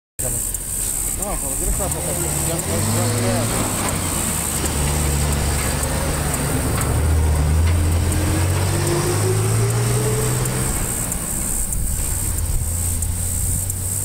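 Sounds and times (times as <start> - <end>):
diesel locomotive drone: 0.2 - 14.0
steady high hiss: 0.2 - 14.0.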